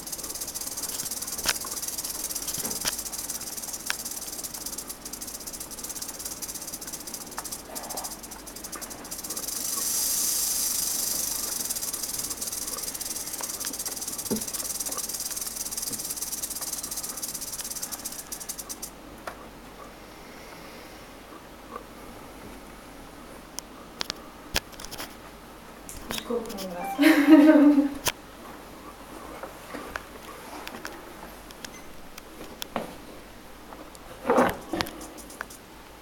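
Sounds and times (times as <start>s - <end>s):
sharp clicks: 0.0s - 18.9s, 34.5s - 35.6s
rattlesnake tail rattling: 0.0s - 19.0s, 34.1s - 35.7s.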